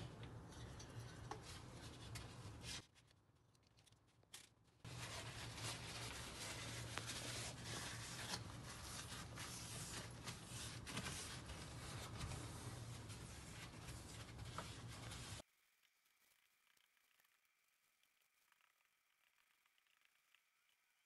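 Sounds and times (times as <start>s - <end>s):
paper towel rubbing on cooktop: 4.9s - 15.4s.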